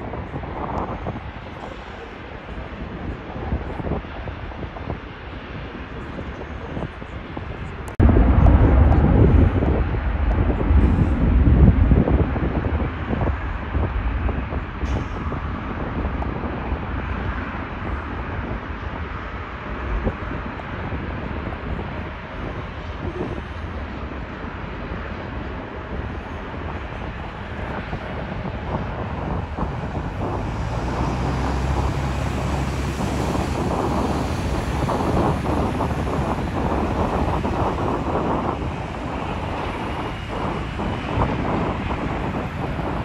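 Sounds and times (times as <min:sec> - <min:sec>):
wind noise on microphone: 0:00.0 - 0:43.0
cars passing: 0:28.2 - 0:43.0.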